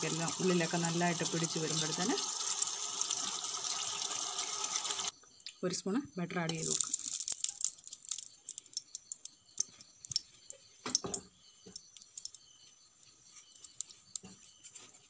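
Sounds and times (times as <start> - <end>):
butter crackling and popping: 6.5 - 12.6, 13.4 - 14.7.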